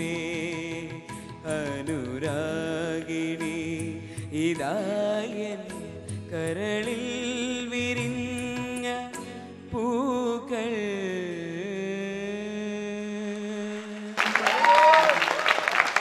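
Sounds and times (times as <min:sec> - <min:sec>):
person singing into a microphone: 0:00.0 - 0:14.4
audience applause: 0:13.8 - 0:16.0.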